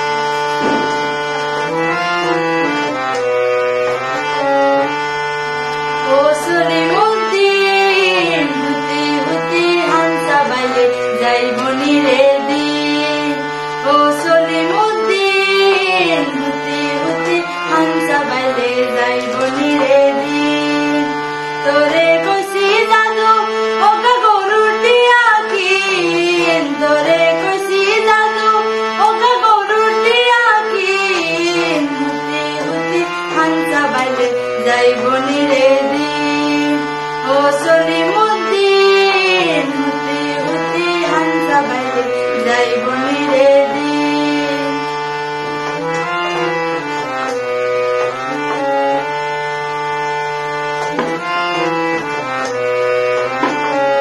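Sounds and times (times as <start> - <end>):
harmonium chords: 0.0 - 54.0
woman singing folk song: 6.0 - 44.8.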